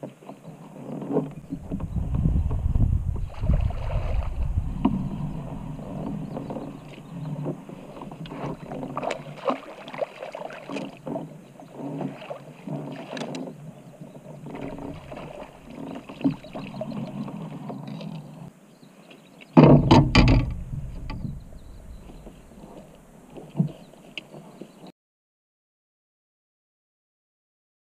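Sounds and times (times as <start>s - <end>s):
splashing and knocking: 1.2s - 13.6s, 14.4s - 18.2s, 19.6s - 22.4s
fish splashing at surface: 8.9s - 11.0s.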